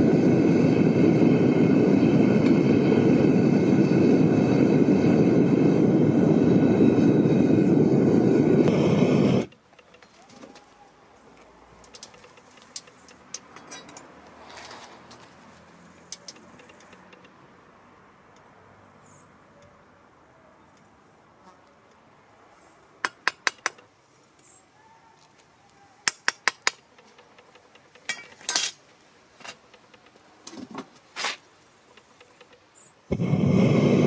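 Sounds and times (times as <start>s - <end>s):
steel rod tapping on slab: 23.0s - 23.8s, 26.0s - 28.8s.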